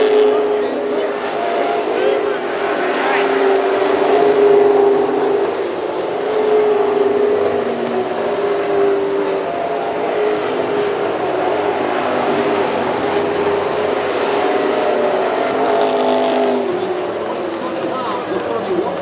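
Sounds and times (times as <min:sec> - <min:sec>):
race car engines droning: 0:00.0 - 0:19.0.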